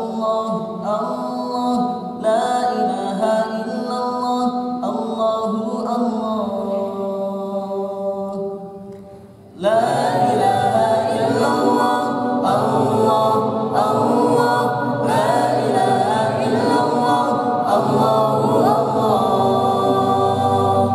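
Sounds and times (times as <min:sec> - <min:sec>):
young men singing without instruments: 0:00.0 - 0:08.7, 0:09.5 - 0:20.9.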